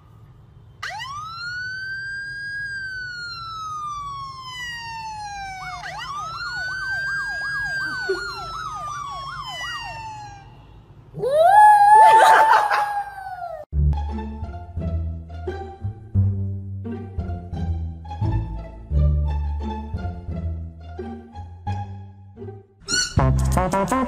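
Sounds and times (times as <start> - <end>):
siren wailing from a phone: 0.8 - 13.6
dog howling: 11.2 - 13.6.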